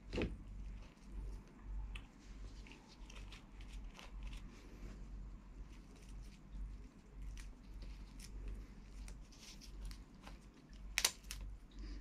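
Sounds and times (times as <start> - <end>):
crab shell clicks and crackles: 7.2 - 11.6.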